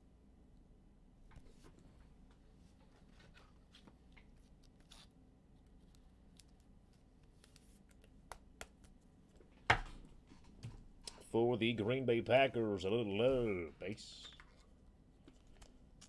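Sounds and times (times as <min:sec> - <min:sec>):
trading cards flipping and sliding: 0:02.8 - 0:09.0.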